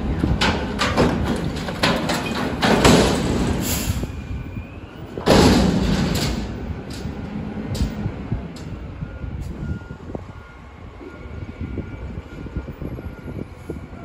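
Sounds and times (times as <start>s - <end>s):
bin thudding and clanking: 0.2s - 3.9s, 5.2s - 6.6s.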